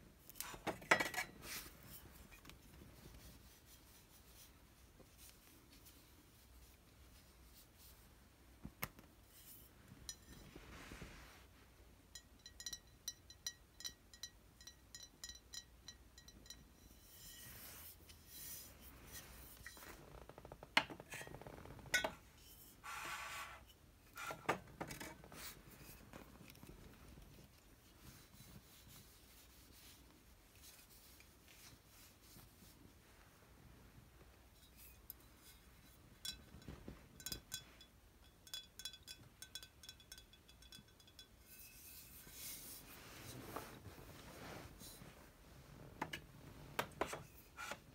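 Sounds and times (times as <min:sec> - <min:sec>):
glass clinking on glass: 0:12.1 - 0:16.9, 0:36.2 - 0:41.7
ringing taps on glass bottles: 0:12.2 - 0:16.8, 0:36.2 - 0:41.5
cloth rubbing on bottles: 0:41.9 - 0:45.8.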